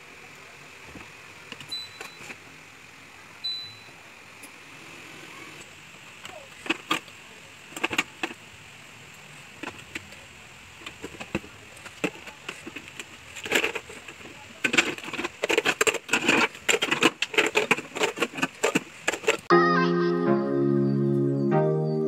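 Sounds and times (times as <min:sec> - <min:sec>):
plastic parts clattering on wire rack: 0:10.8 - 0:19.5.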